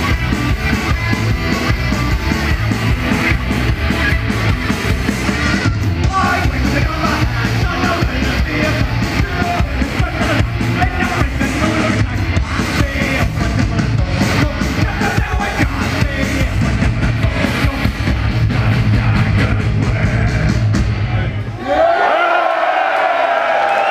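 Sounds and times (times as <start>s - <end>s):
pounding drums: 0.0s - 21.2s
distorted electric guitars: 0.0s - 21.5s
bass guitar: 0.0s - 21.6s
shouted vocals: 21.5s - 23.9s.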